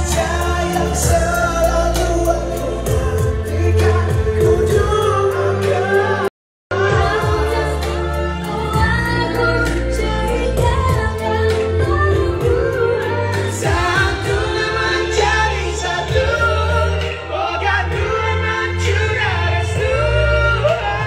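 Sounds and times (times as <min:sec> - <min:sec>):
backing track with beat and bass: 0:00.0 - 0:21.0
woman singing into microphone: 0:05.6 - 0:17.0.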